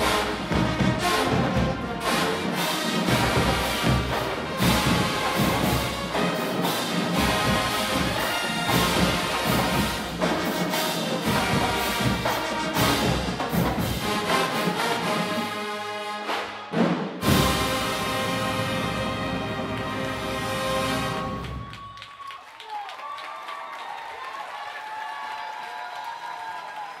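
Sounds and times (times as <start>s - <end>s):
drum strokes: 0.0s - 15.4s, 16.2s - 21.4s
marching band playing: 0.0s - 21.8s.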